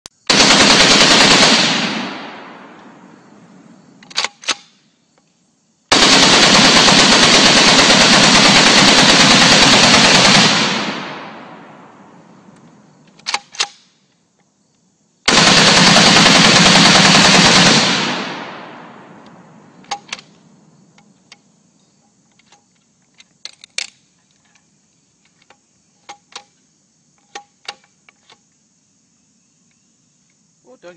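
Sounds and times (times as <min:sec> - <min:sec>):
machine gun firing bursts: 0:00.3 - 0:02.4, 0:05.9 - 0:11.4, 0:15.3 - 0:18.6.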